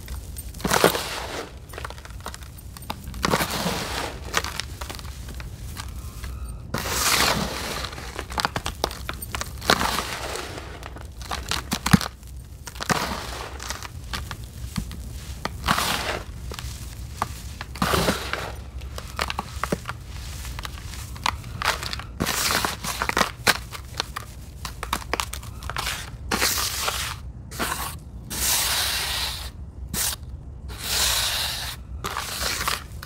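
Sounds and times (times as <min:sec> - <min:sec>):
hands crunching damp sand: 0:00.0 - 0:33.0.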